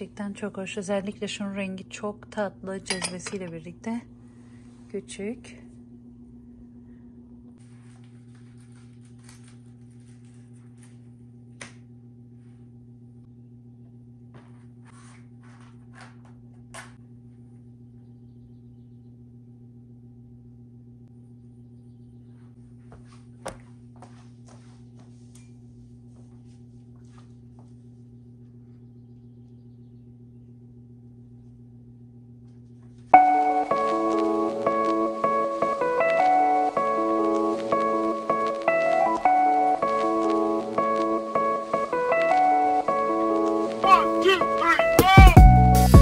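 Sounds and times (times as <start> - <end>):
steady low hum: 0.0 - 45.9
footsteps: 22.4 - 27.9.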